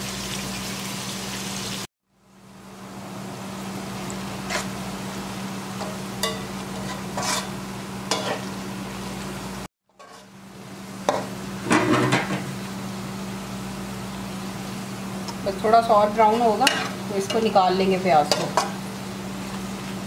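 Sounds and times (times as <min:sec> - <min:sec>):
onions sizzling in hot oil: 0:00.0 - 0:01.9, 0:02.8 - 0:20.0
metal spatula scraping a pot: 0:04.5 - 0:04.7, 0:05.8 - 0:08.5, 0:09.9 - 0:10.3.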